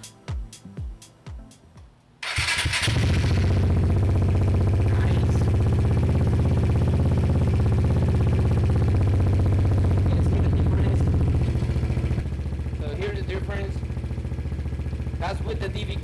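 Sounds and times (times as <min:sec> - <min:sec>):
scooter engine idling: 0:02.2 - 0:16.0.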